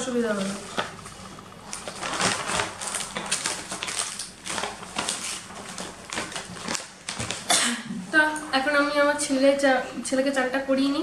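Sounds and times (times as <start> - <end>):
packaging crinkling and rustling: 0.3 - 7.5.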